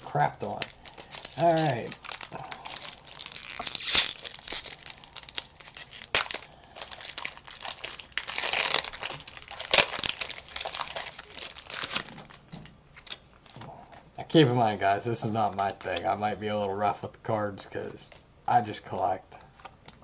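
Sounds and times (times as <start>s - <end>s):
foil wrapper crinkling and tearing: 0.4s - 13.5s.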